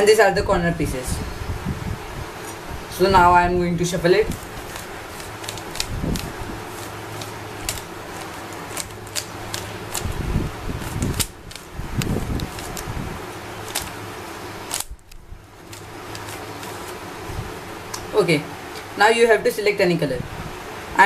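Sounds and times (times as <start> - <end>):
steady low hum: 0.0 - 21.0
puzzle cube layers clicking: 4.7 - 6.3, 10.8 - 12.9, 14.7 - 14.9.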